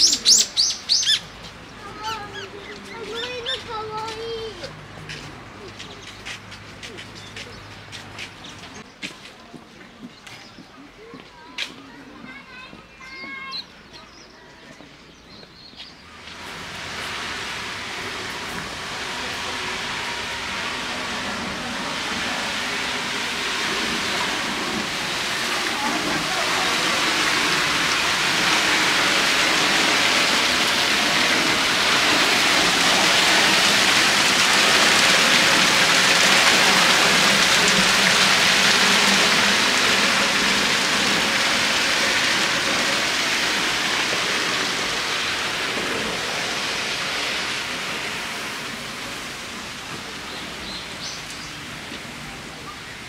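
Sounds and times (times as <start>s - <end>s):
hot spring steam rushing hiss: 0.0s - 15.2s, 15.9s - 53.0s
water splashing: 16.1s - 52.5s.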